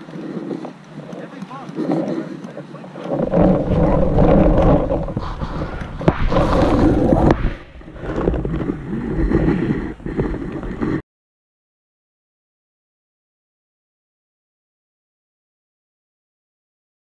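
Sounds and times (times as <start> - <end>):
wind buffeting microphone: 0.0 - 11.0
sharp pop: 6.0 - 6.4.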